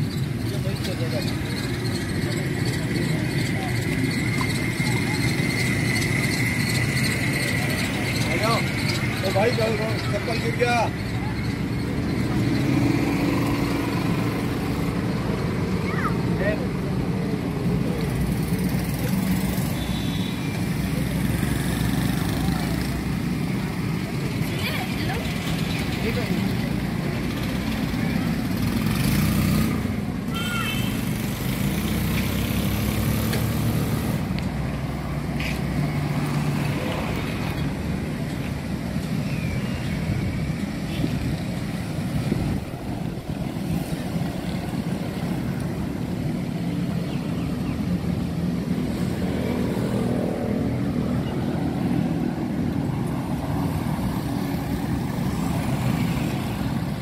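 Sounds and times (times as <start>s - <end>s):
traffic rumble: 0.0s - 57.0s
motorcycle passing close: 24.8s - 30.1s, 30.8s - 34.4s.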